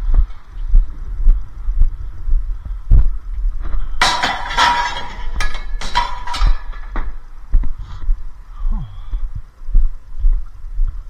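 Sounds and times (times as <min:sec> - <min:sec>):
metal tubes clattering into truck: 0:04.0 - 0:07.2.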